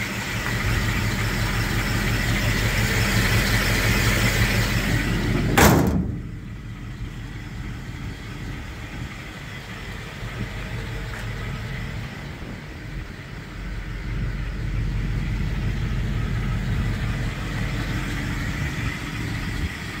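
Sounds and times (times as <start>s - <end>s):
truck engine idling: 0.0s - 20.0s
sharp loud thump: 5.4s - 6.4s.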